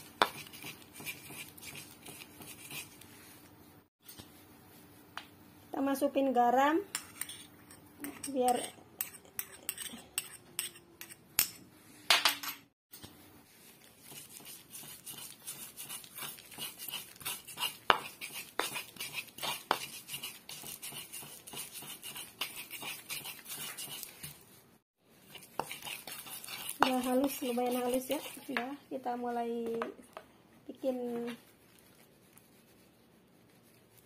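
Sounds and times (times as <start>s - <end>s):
stone pestle grinding in mortar: 14.1s - 24.1s, 25.3s - 28.7s.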